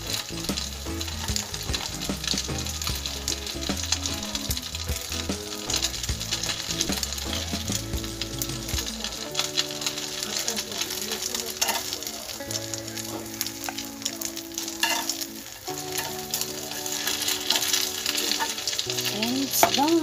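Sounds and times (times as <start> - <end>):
food sizzling in hot oil: 0.0 - 20.0
held musical notes: 0.0 - 20.0
metal tongs scraping pan: 5.0 - 12.1, 13.3 - 20.0.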